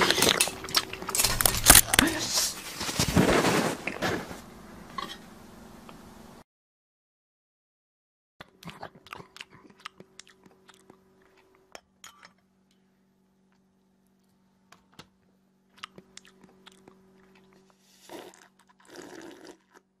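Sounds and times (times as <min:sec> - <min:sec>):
chewing and crunching: 0:00.0 - 0:02.6, 0:08.4 - 0:12.4, 0:15.7 - 0:19.8.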